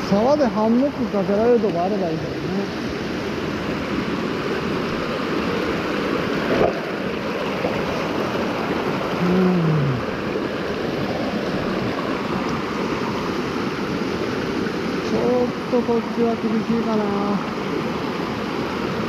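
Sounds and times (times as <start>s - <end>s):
stream rushing over rocks: 0.0s - 19.0s
low falling vocal hum: 9.1s - 10.3s.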